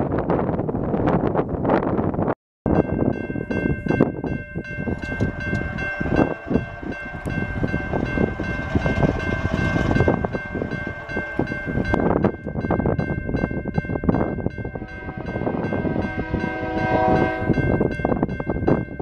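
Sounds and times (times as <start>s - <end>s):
locomotive engines rumbling: 2.9s - 19.0s
train horn blast: 5.0s - 12.3s, 14.6s - 17.8s.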